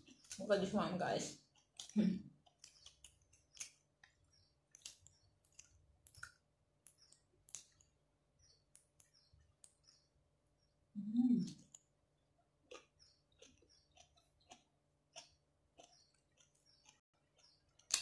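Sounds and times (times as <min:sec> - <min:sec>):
person eating and chewing: 0:00.0 - 0:00.4, 0:01.4 - 0:08.0, 0:12.5 - 0:18.0
low humming voice: 0:11.0 - 0:11.6.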